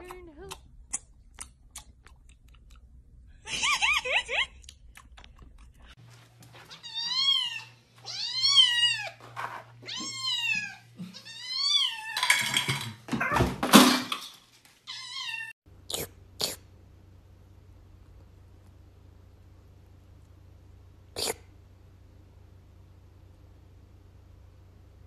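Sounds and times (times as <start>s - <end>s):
cat meowing: 6.7s - 9.2s, 9.8s - 12.3s, 14.9s - 15.5s.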